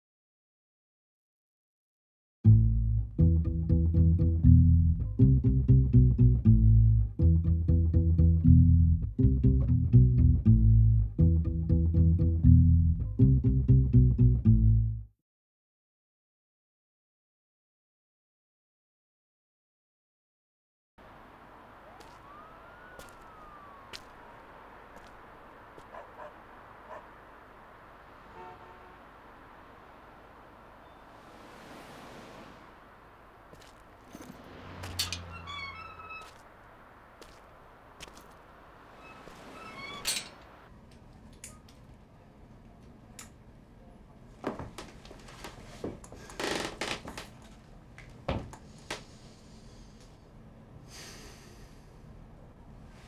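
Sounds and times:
distant siren wailing: 21.0 - 40.7
faint city street ambience: 21.0 - 53.0.

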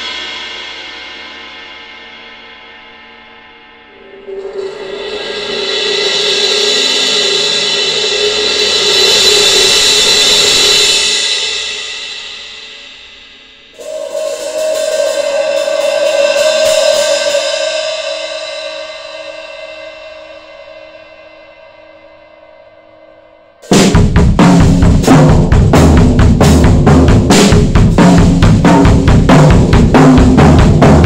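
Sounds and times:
cymbal rolls: 0.0 - 24.0.

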